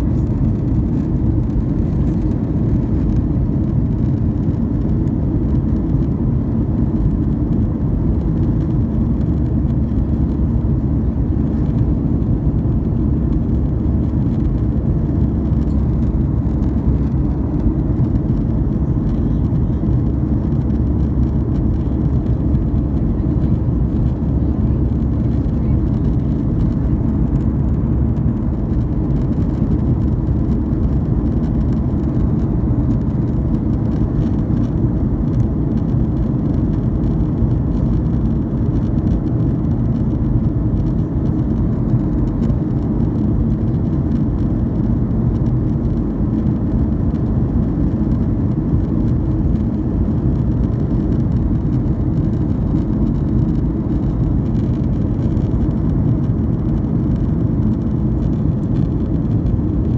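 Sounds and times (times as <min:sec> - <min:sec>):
jet engines rumbling in cabin: 0:00.0 - 0:59.9.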